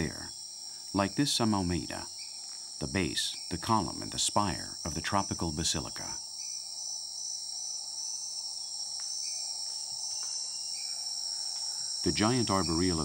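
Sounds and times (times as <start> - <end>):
low hiss: 0.0 - 6.8
high-pitched insect drone: 0.0 - 13.0.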